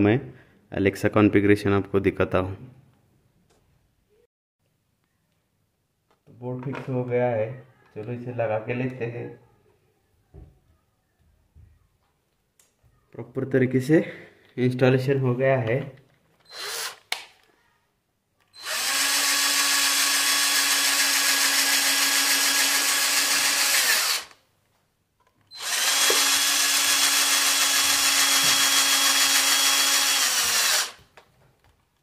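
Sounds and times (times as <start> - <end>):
cordless drill driving screws: 16.4 - 17.2, 18.5 - 24.4, 25.5 - 31.1.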